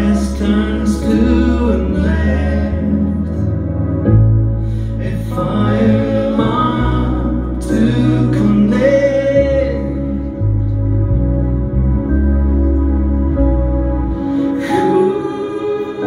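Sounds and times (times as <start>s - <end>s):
keyboard bass notes: 0.0s - 16.0s
voices singing: 5.0s - 10.2s.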